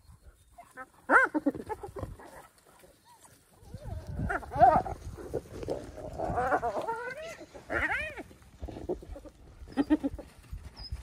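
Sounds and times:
wild dogs whining and squealing: 0.0s - 11.0s.

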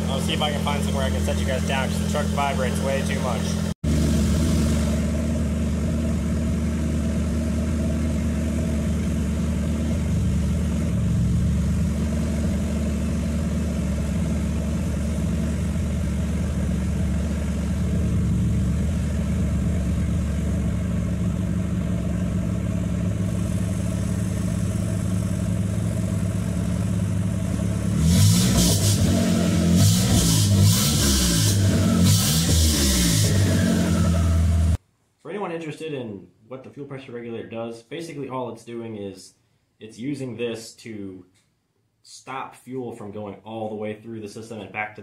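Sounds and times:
pickup engine idling: 0.0s - 29.9s.

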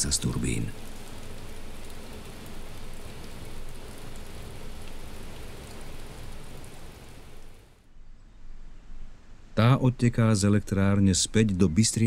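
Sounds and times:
water rushing: 0.0s - 7.7s.

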